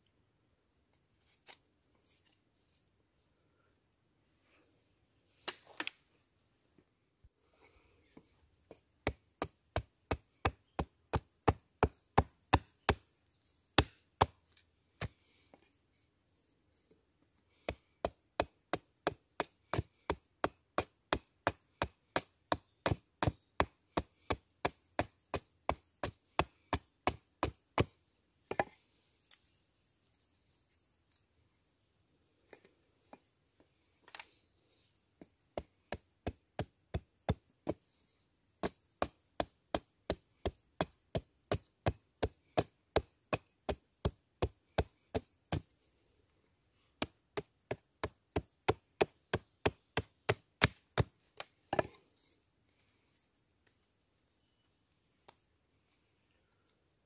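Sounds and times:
blade chopping wood: 0:18.4 - 0:28.7, 0:47.0 - 0:52.0.

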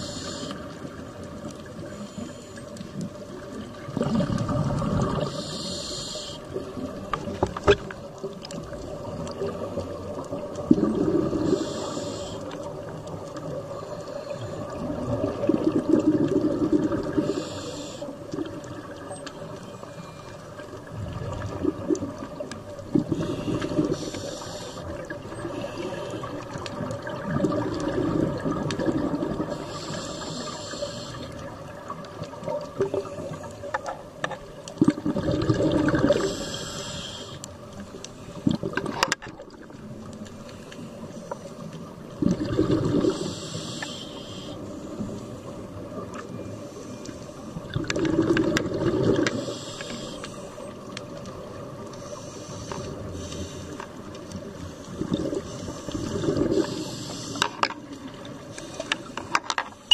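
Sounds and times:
diver breathing through regulator: 0:00.0 - 0:00.8, 0:05.0 - 0:06.6, 0:11.0 - 0:12.6, 0:17.0 - 0:18.2, 0:23.0 - 0:26.4, 0:29.4 - 0:31.4, 0:36.1 - 0:37.5, 0:42.7 - 0:45.6, 0:49.1 - 0:50.7, 0:52.0 - 0:53.9, 0:54.7 - 0:57.7
exhaled bubbles rushing: 0:03.6 - 0:05.4, 0:08.9 - 0:11.6, 0:14.6 - 0:17.4, 0:20.9 - 0:24.0, 0:26.2 - 0:29.6, 0:34.8 - 0:36.4, 0:42.1 - 0:43.3, 0:47.7 - 0:49.4, 0:55.0 - 0:56.8.

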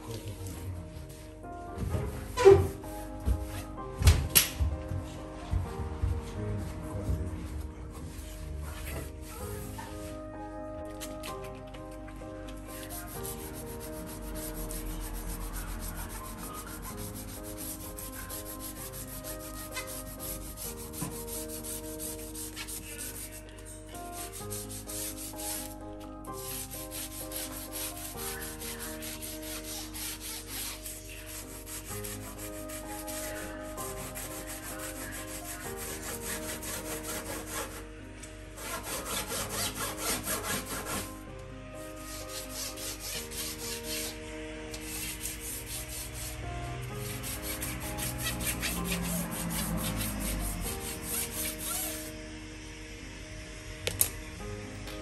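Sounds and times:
scrubbing metal hob edge: 0:38.6 - 0:41.1, 0:47.0 - 0:52.1.

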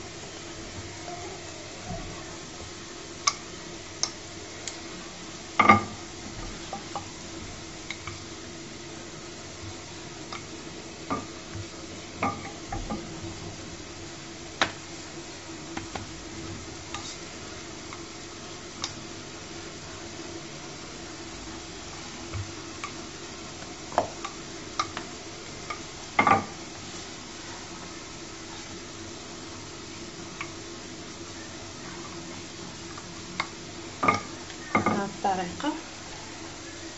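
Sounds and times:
rolling pin rolling dough: 0:05.0 - 0:19.2.

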